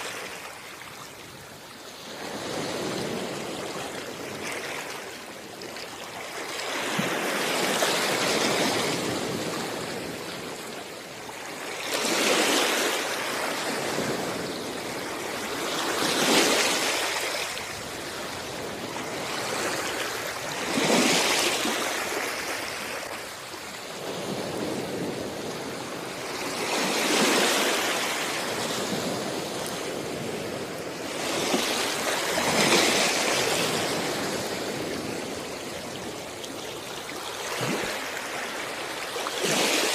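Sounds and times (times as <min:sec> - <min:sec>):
sea waves washing onto beach: 0:00.0 - 0:39.9.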